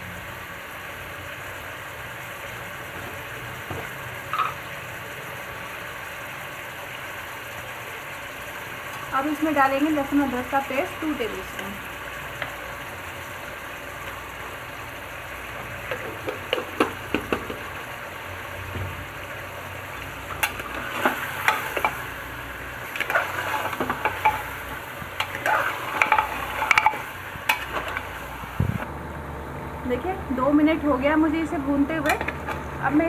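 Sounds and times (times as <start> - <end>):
meat sizzling in oil: 0.0 - 28.8
steel spoon scraping and clinking pot: 20.4 - 22.0, 22.9 - 28.1.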